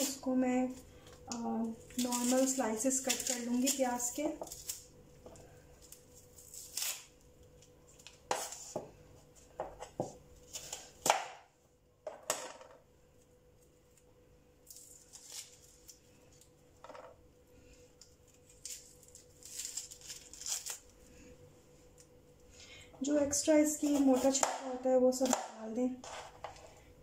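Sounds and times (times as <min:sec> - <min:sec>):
papery onion skin tearing: 0:00.0 - 0:08.7, 0:13.2 - 0:16.6, 0:17.9 - 0:21.3
knife scraping onion: 0:06.4 - 0:07.1, 0:23.8 - 0:24.5.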